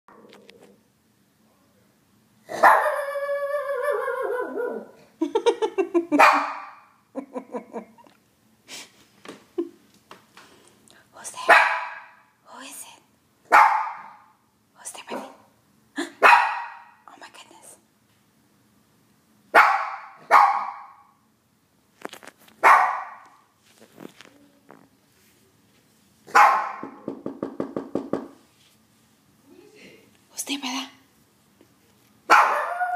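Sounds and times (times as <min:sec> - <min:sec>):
dog barking: 0:02.5 - 0:03.1, 0:06.2 - 0:06.9, 0:11.4 - 0:12.2, 0:13.5 - 0:14.3, 0:16.2 - 0:17.0, 0:19.5 - 0:21.1, 0:22.6 - 0:23.3, 0:26.3 - 0:27.0, 0:32.3 - 0:32.9
dog howling: 0:02.6 - 0:05.0, 0:32.4 - 0:32.9
dog yipping: 0:02.6 - 0:05.0, 0:19.6 - 0:21.0, 0:22.6 - 0:23.2, 0:26.3 - 0:26.9, 0:32.3 - 0:32.9.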